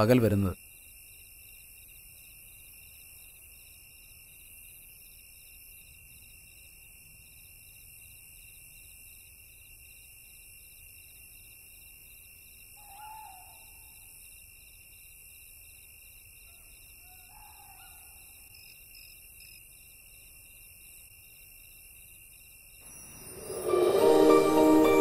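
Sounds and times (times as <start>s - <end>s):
owl hooting: 12.8s - 14.0s, 16.5s - 18.2s.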